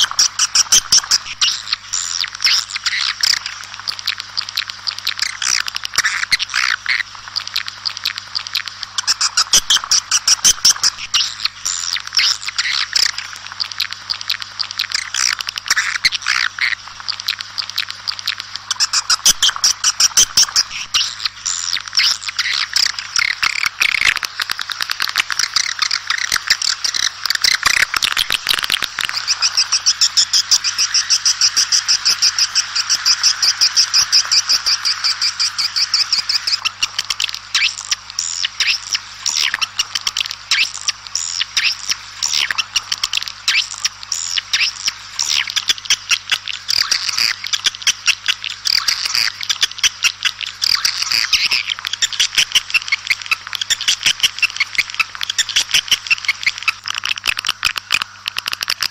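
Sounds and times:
swiftlets twittering: 25.1 - 45.5.

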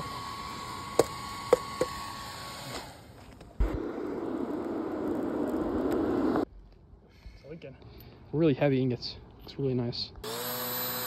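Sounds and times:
air rushing through pipe into fire: 3.6 - 6.5.

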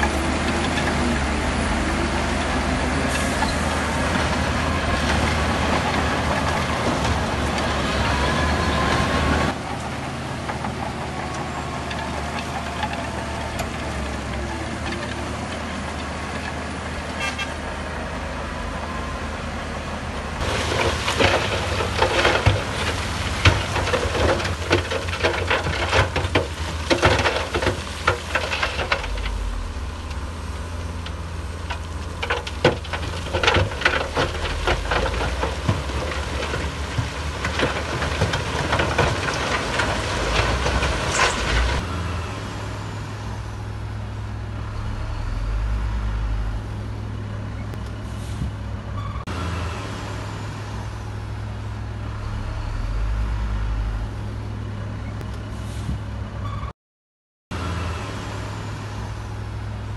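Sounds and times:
machinery clattering and knocks: 0.0 - 17.2, 20.4 - 41.8
heavy diesel machinery engine drone: 0.0 - 56.7, 57.5 - 59.9.

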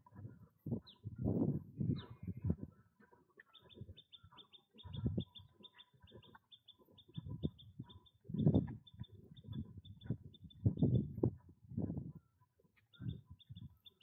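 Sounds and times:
small bird chirping: 0.1 - 14.0
low thumps and rumbles: 8.3 - 8.8.

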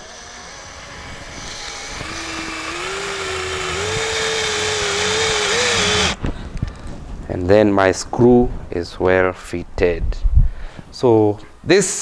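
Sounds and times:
cordless drill driving a screw: 0.0 - 6.2.

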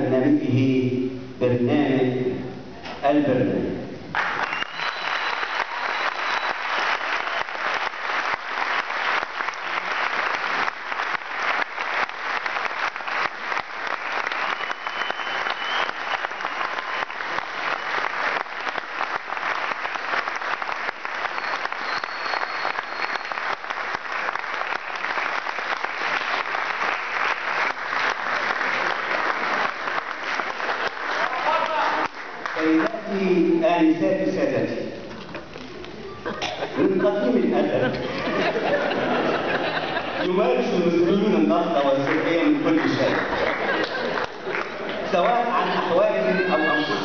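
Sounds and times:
audience applauding: 4.1 - 33.2, 41.8 - 47.0.

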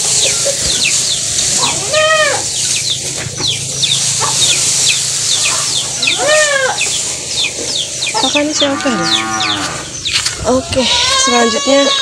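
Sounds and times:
birds peeping: 0.0 - 12.0
goat bleating: 1.6 - 2.4, 10.5 - 12.0.

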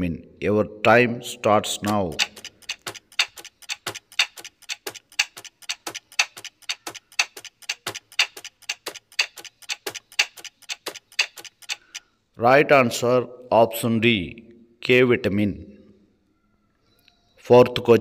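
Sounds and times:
clock ticking: 1.8 - 12.1.

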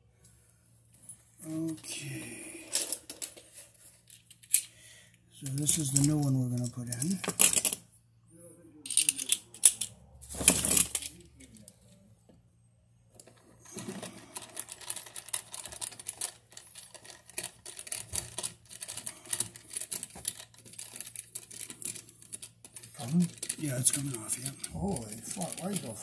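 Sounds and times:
loud handling noise: 8.9 - 11.2.

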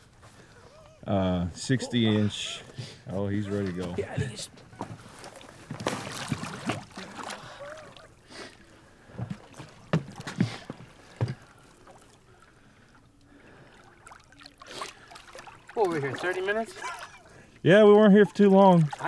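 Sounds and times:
water lapping: 0.0 - 19.0
fish splashing at the surface: 5.1 - 17.3, 18.6 - 19.0
water knocking against boat hull: 9.2 - 11.4.

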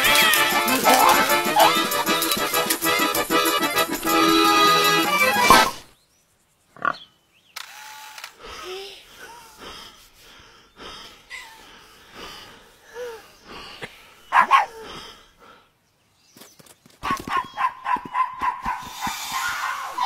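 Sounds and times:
dog yelping: 0.0 - 2.5, 14.3 - 14.8, 17.0 - 18.8.

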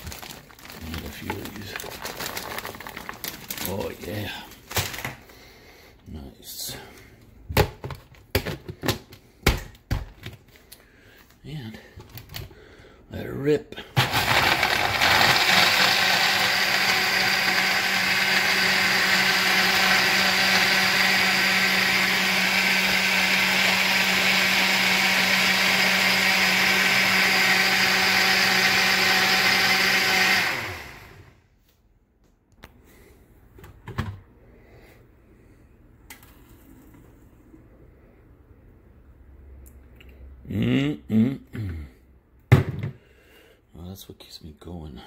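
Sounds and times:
blender running: 14.0 - 31.4.

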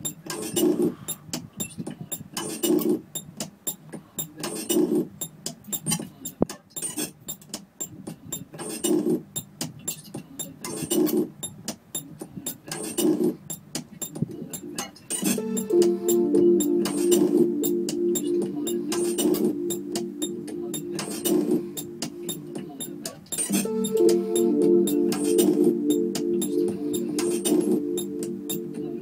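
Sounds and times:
electronic music: 14.6 - 29.0
low chord stabs: 15.4 - 23.0, 23.6 - 29.0.

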